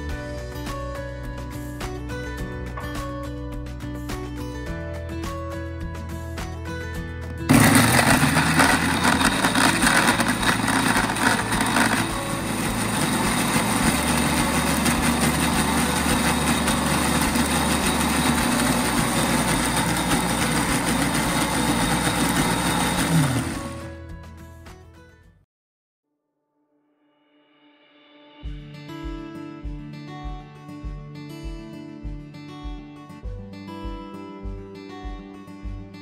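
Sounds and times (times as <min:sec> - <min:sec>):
blender grinding wet paste: 0:07.4 - 0:24.0.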